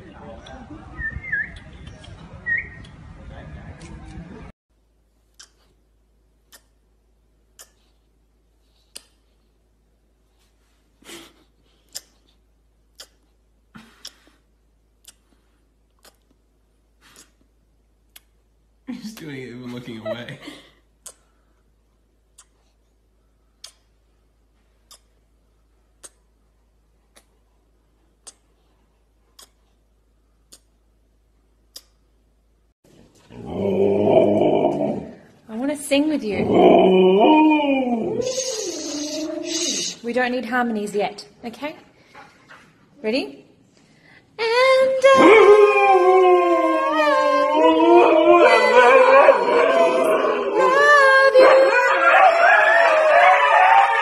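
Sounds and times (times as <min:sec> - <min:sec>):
dog howling: 0:33.3 - 0:35.2, 0:36.4 - 0:39.9, 0:45.0 - 0:54.0.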